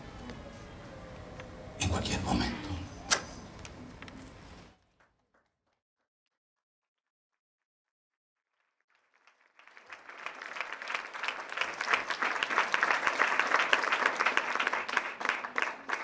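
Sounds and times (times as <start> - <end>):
audience applause: 8.9 - 16.0.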